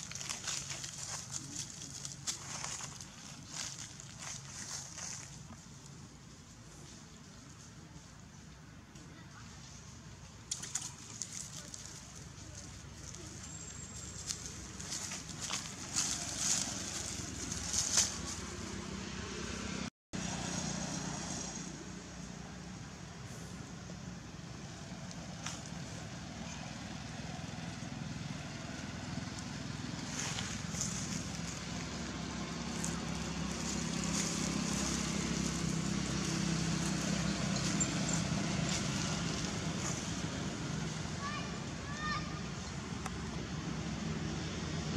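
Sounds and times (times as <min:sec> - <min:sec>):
dry leaves crackling underfoot: 0:00.0 - 0:08.1, 0:10.5 - 0:19.0, 0:24.7 - 0:42.1
vehicle engine drone: 0:12.1 - 0:44.9.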